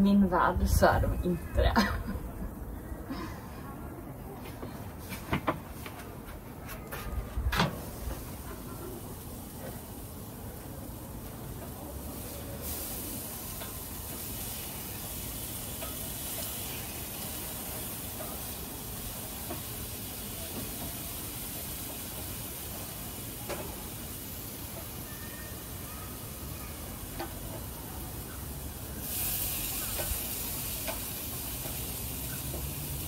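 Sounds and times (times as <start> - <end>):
meat sizzling on a grill: 7.6 - 33.0
metal tongs clicking on grate: 15.7 - 16.6.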